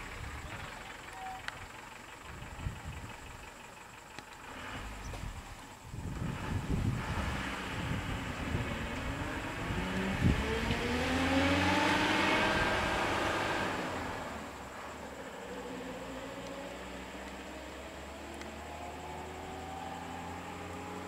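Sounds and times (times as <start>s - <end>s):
vehicle engine speeding up: 4.4s - 21.0s.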